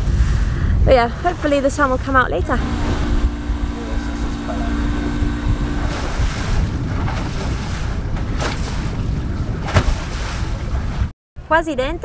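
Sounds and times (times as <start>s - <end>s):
choppy water along hull: 0.0s - 11.1s
wind buffeting microphone: 0.0s - 11.1s
low hum: 2.4s - 8.5s.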